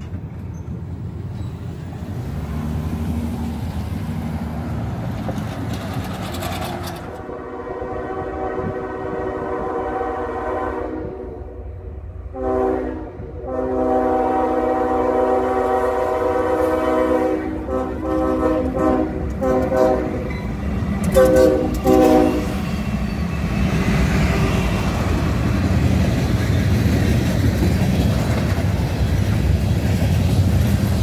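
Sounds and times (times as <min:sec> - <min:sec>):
wheels clacking on rails: 0:00.0 - 0:07.3, 0:17.6 - 0:31.0
train rumbling past: 0:00.0 - 0:31.0
locomotive air horn blasts: 0:06.8 - 0:11.7, 0:12.3 - 0:20.4, 0:21.1 - 0:22.6.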